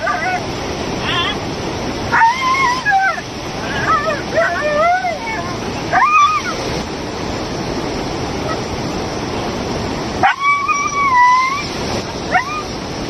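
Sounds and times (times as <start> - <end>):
dog whining: 0.0 - 0.4, 2.1 - 6.6, 10.2 - 12.7
dog yelping: 0.0 - 0.4, 2.1 - 6.6, 10.2 - 12.7
water rushing: 0.0 - 13.0.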